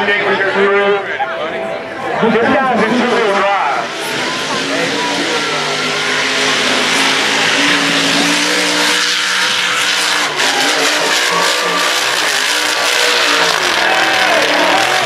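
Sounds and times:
truck engine revving high: 0:02.2 - 0:15.0.

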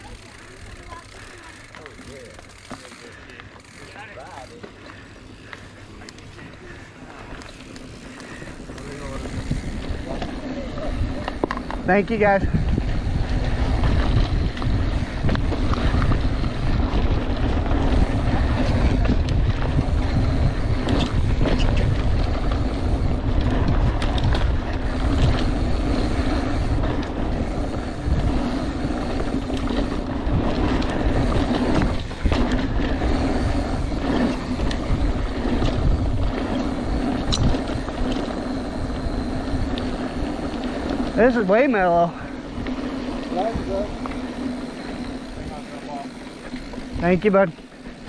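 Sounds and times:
bike rattling: 0:00.0 - 0:48.0
bike tyres rumbling on dirt: 0:00.0 - 0:48.0
wind on microphone: 0:08.5 - 0:41.2.

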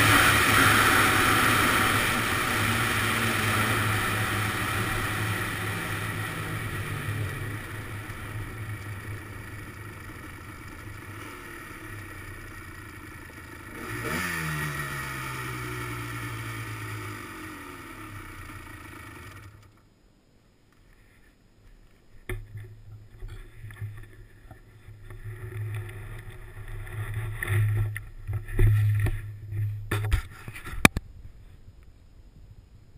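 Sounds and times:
two-stroke engine running: 0:00.0 - 0:19.8.

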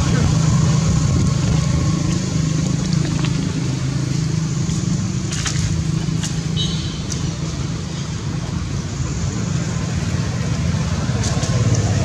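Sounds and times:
low engine hum: 0:00.0 - 0:12.0.

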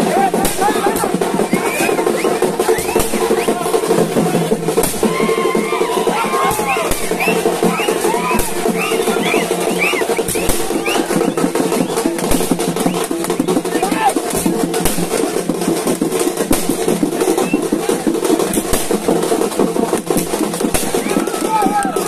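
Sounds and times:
voices shouting: 0:00.0 - 0:12.0, 0:13.5 - 0:14.2, 0:20.9 - 0:22.0
crowd noise: 0:00.0 - 0:22.0
fast dense drumming: 0:00.0 - 0:22.0.

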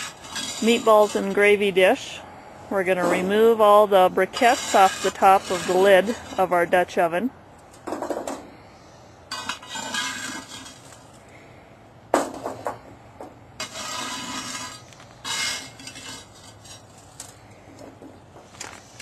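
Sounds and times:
metal scraping and clinking: 0:00.0 - 0:01.8, 0:02.8 - 0:06.7, 0:09.3 - 0:11.1, 0:13.6 - 0:18.7.

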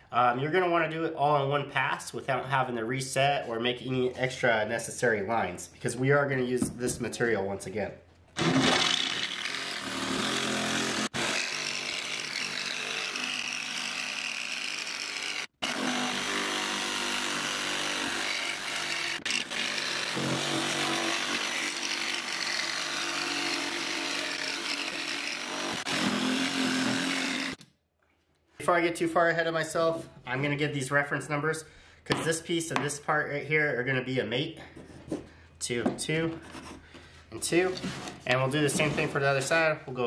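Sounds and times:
jigsaw cutting board: 0:08.4 - 0:27.6.

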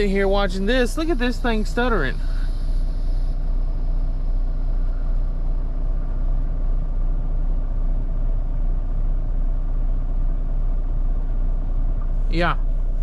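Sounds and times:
diesel truck engine idling: 0:00.0 - 0:13.0.

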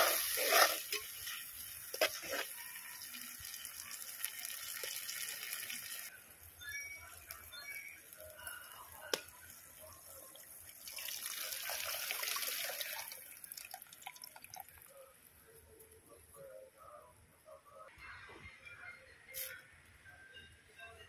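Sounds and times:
liquid pouring into a pot: 0:09.7 - 0:14.9.

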